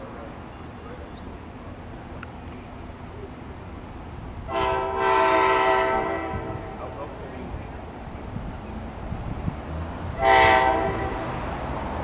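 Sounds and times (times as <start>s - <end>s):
train air horn blast: 4.5s - 6.8s, 10.2s - 11.4s.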